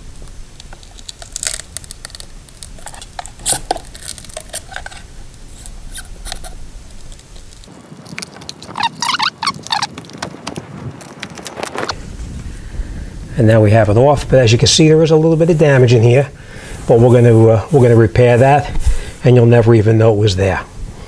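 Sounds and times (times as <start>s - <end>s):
glue cracking and strip pulling off: 0.3s - 12.0s.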